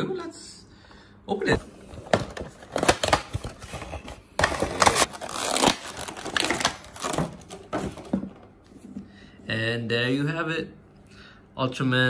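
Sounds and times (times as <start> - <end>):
cardboard box crinkling: 2.2 - 8.1.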